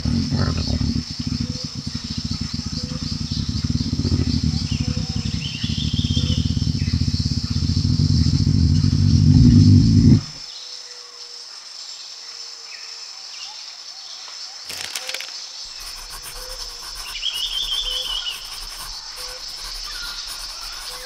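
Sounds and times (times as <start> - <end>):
bird chirps: 0.0 - 10.2, 14.7 - 21.0
insects chirring: 0.0 - 10.4, 14.4 - 21.0.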